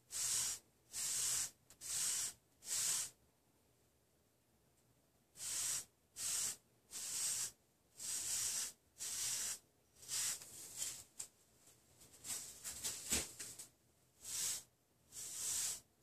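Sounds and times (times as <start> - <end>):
brush strokes through hair: 5.4 - 11.2.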